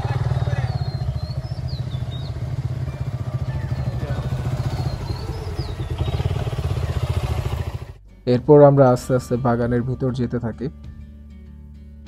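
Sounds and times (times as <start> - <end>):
motorcycle engines running slowly: 0.0 - 8.0.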